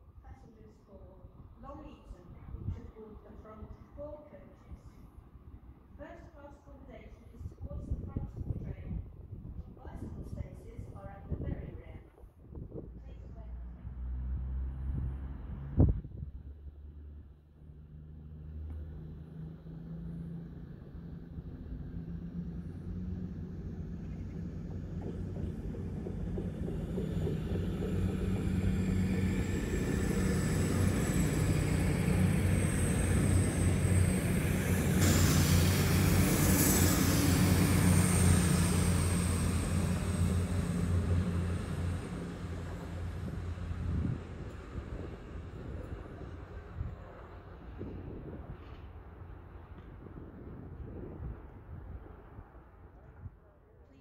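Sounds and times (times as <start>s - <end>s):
diesel train engines: 0.0s - 11.8s, 13.0s - 53.3s.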